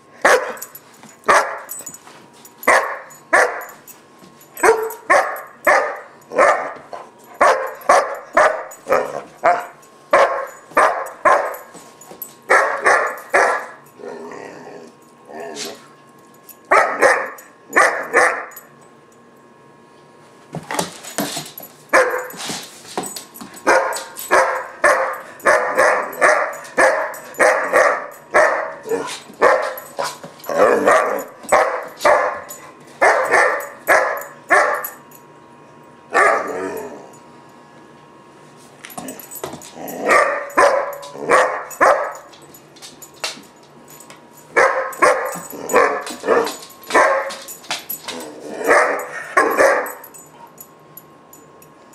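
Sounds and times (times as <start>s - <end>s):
puppy barking: 0.2s - 0.6s, 1.3s - 1.7s, 2.7s - 3.7s, 4.6s - 6.8s, 7.4s - 11.6s, 12.5s - 13.8s, 16.7s - 18.5s, 23.7s - 35.0s, 36.2s - 36.5s, 40.1s - 42.3s, 44.6s - 47.4s, 48.6s - 50.0s.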